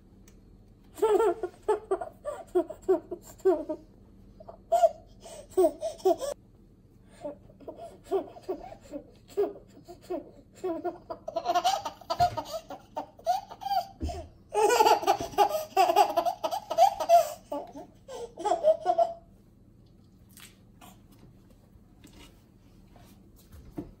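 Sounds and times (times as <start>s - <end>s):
baby laughing: 1.0s - 3.8s, 4.4s - 6.4s, 7.2s - 19.3s.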